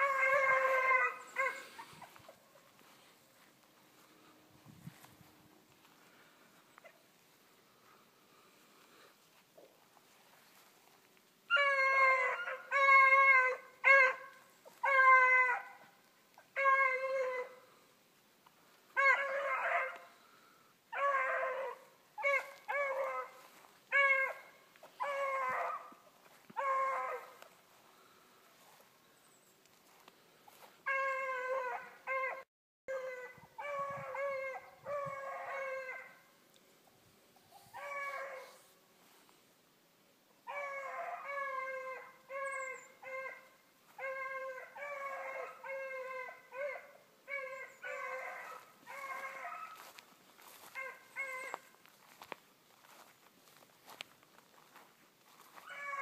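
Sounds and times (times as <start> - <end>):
dogs baying: 0.0 - 2.9, 11.5 - 15.9, 21.0 - 27.5, 40.5 - 53.1, 55.4 - 56.0.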